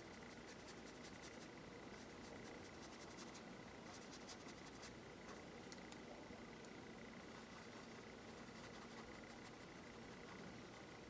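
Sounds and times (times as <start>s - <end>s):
paintbrush strokes on paper: 0.0s - 5.4s.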